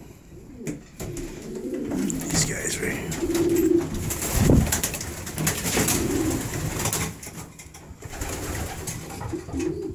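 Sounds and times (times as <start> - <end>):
pigeons cooing: 0.2 - 4.6, 5.6 - 6.8, 8.1 - 9.9.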